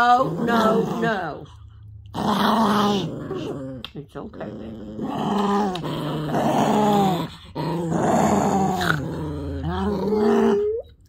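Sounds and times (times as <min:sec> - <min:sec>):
small dog growling: 0:00.0 - 0:11.0
dog whining: 0:09.5 - 0:11.0.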